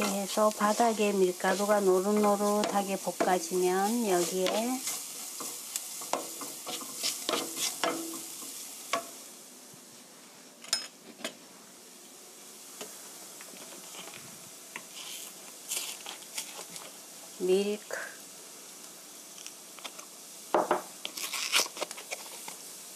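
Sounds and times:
spatula scraping frying pan: 0:00.0 - 0:09.2
food sizzling in pan: 0:00.0 - 0:22.9
paper carton crinkling open: 0:21.2 - 0:22.5.

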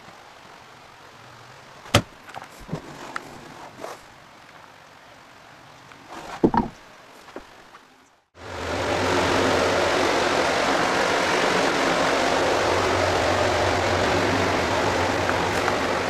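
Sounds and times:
handling knocks: 0:01.9 - 0:02.9, 0:06.2 - 0:07.5.

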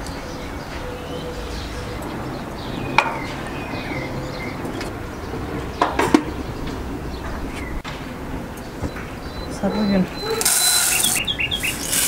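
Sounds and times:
small birds chirping: 0:08.5 - 0:12.0.

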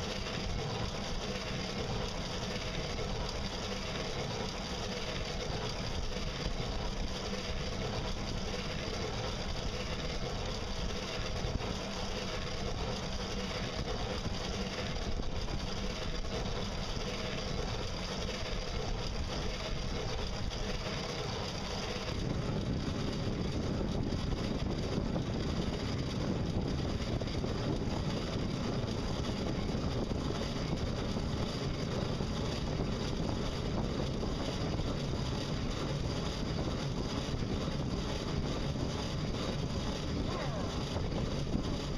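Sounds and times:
boat motor humming: 0:00.0 - 0:41.9
faint high whine: 0:00.0 - 0:41.9
water noise: 0:00.0 - 0:41.9.

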